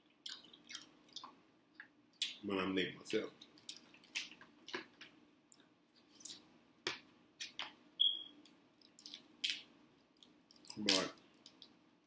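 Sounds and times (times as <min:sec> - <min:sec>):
shellfish cracking and squishing: 0:00.0 - 0:02.4, 0:03.4 - 0:06.4, 0:08.8 - 0:11.8
wet chewing mouth sounds: 0:00.2 - 0:02.3.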